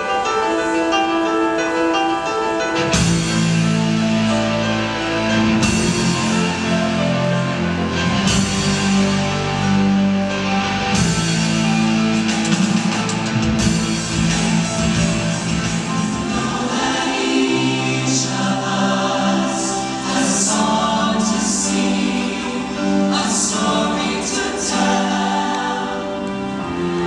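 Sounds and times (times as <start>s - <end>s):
keyboard: 0.0s - 27.0s
drum kit: 2.6s - 19.4s
bass line: 3.0s - 16.9s.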